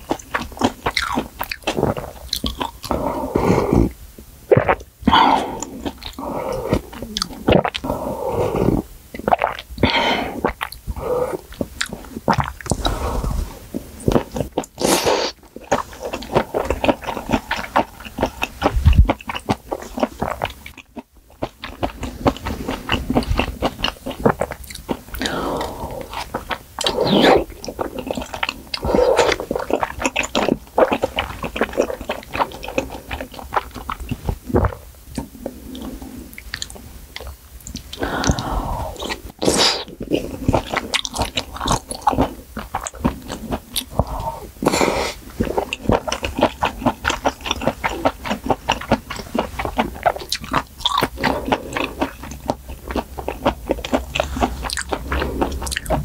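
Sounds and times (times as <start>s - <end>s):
chewing with wet mouth clicks: 0.0s - 3.0s, 15.4s - 38.4s, 39.8s - 44.2s, 45.3s - 56.0s
slurping broth and noodles: 25.2s - 29.8s, 38.0s - 40.9s.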